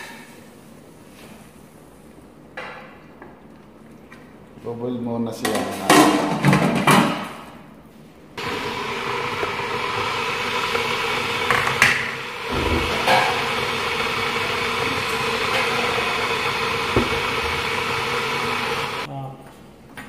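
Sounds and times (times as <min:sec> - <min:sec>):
machine humming and whirring: 0:08.4 - 0:19.1.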